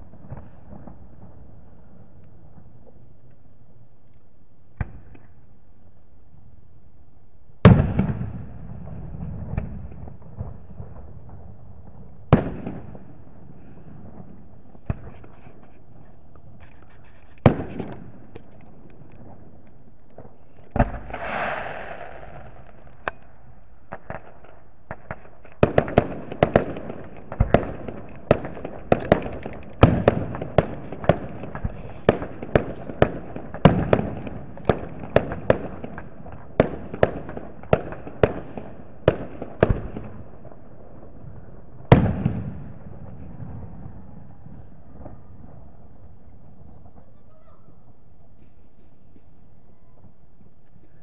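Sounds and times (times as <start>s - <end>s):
fireworks bangs and bursts: 0.0s - 3.2s, 4.7s - 5.4s, 7.6s - 50.5s
firework crackle: 7.8s - 51.0s
firework hiss: 20.9s - 22.8s.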